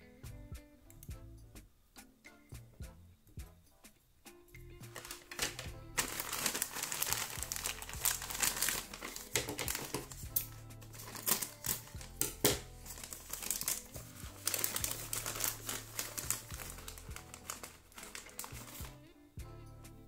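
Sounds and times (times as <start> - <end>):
background music: 0.0 - 20.0
plastic bag crinkling: 4.9 - 19.0
plastic pegs clicking together: 8.8 - 10.5, 11.2 - 12.7.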